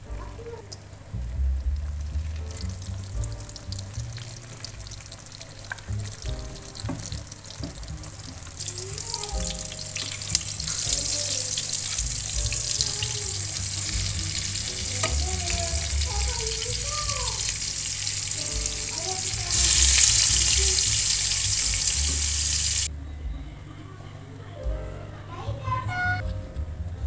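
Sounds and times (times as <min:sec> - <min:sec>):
background music: 0:00.0 - 0:27.0
oil sizzling in a pan: 0:02.0 - 0:22.9.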